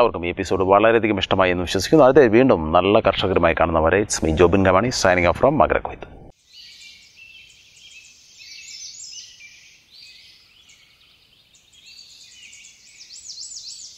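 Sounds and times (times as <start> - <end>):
many small birds chirping: 6.4 - 13.9.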